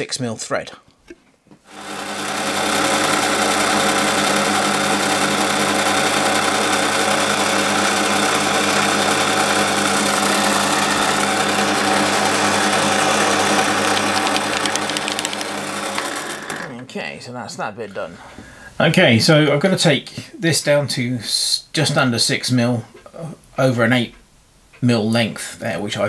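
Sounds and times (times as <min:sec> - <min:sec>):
lathe motor whirring: 0:01.7 - 0:16.8.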